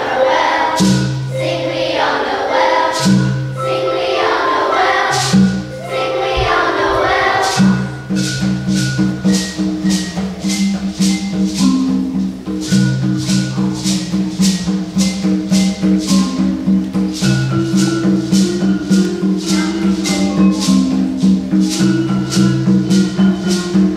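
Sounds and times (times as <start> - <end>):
children's choir singing: 0.0 - 9.9, 15.3 - 23.9
shaker beat: 0.0 - 23.9.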